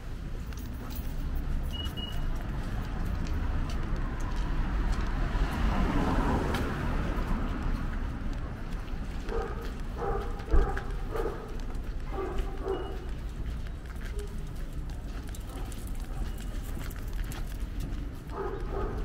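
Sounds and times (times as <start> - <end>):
low traffic rumble: 0.0 - 19.0
vehicle passing on wet road: 4.5 - 8.2.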